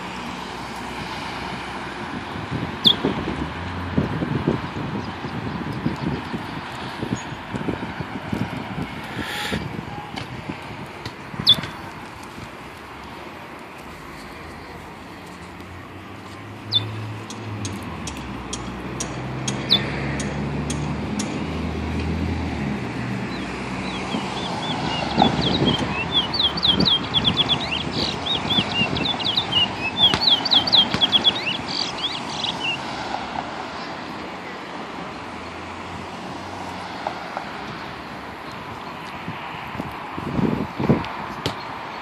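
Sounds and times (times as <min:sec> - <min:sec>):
road traffic rumbling: 0:00.0 - 0:42.0
songbird chirping: 0:23.3 - 0:32.9.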